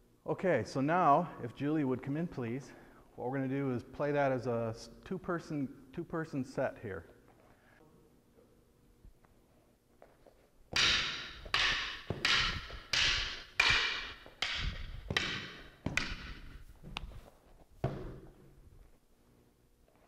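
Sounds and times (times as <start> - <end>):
wooden sticks clacking: 10.8 - 17.2.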